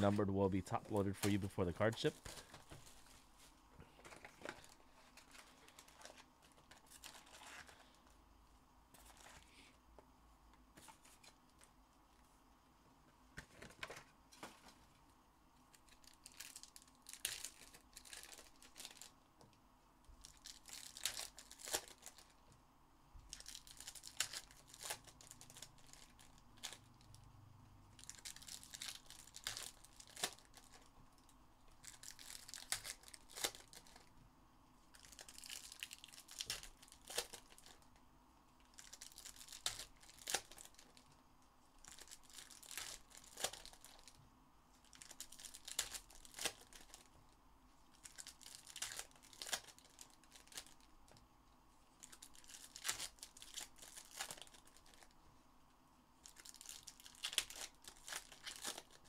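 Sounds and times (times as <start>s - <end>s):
wrappers crinkling: 15.7s - 19.2s, 20.2s - 22.4s, 23.3s - 27.2s, 28.0s - 34.1s, 34.9s - 37.9s, 38.6s - 41.1s, 41.8s - 44.2s, 44.8s - 47.1s, 47.9s - 51.2s, 52.0s - 55.2s, 56.2s - 59.0s
foil packs tearing open: 20.2s - 22.3s, 23.3s - 26.8s, 28.0s - 30.9s, 31.8s - 34.1s, 35.0s - 37.8s, 38.7s - 41.0s, 41.8s - 44.1s, 44.9s - 47.1s, 48.0s - 50.8s, 52.0s - 55.1s, 56.2s - 59.0s.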